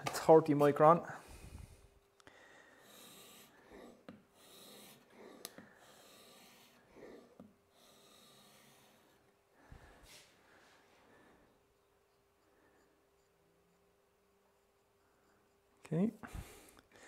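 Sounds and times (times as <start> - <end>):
plane blade rasping on abrasive film: 2.8 - 9.1.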